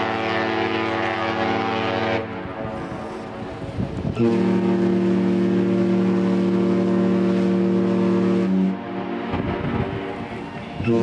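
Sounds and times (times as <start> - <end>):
ship's whistle blast: 0.0 - 3.2, 4.1 - 9.2, 10.8 - 11.0.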